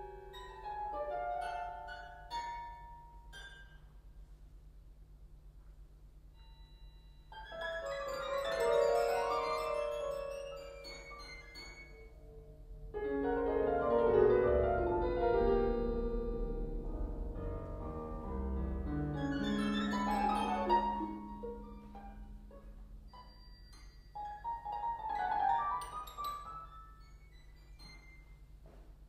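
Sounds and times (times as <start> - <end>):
contemporary concert music: 7.4 - 23.5.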